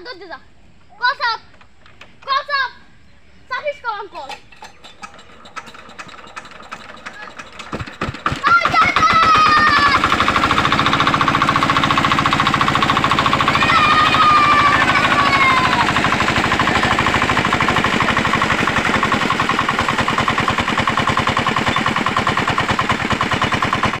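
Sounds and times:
diesel engine running: 5.4s - 24.0s
water gushing from pump: 5.5s - 24.0s.

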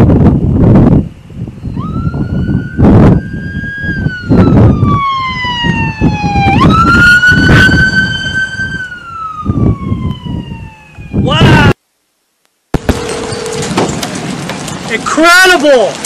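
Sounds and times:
wind buffeting microphone: 0.0s - 11.8s
siren wailing: 1.5s - 11.8s.

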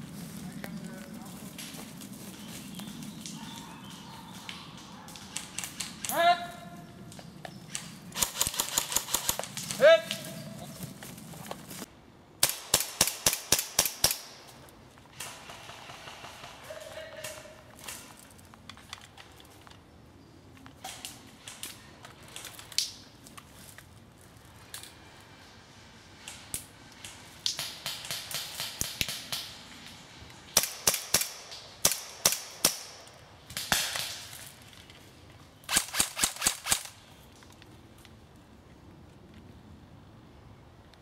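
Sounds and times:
airsoft guns firing: 7.7s - 10.0s, 12.4s - 14.4s, 30.5s - 34.4s, 35.7s - 37.0s.

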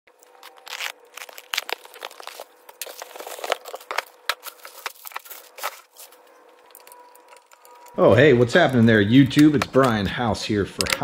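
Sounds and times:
packing tape ripping: 0.2s - 7.7s
plastic bag crinkling: 0.2s - 9.0s.

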